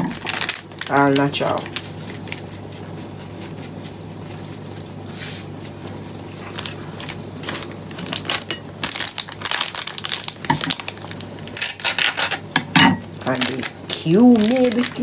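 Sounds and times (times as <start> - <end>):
plastic packets crinkling: 0.0 - 2.8, 6.4 - 15.0.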